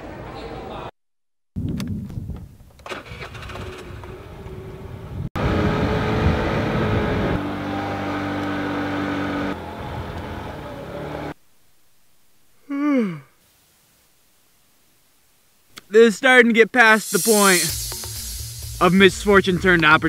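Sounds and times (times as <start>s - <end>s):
wind noise: 1.6s - 7.4s.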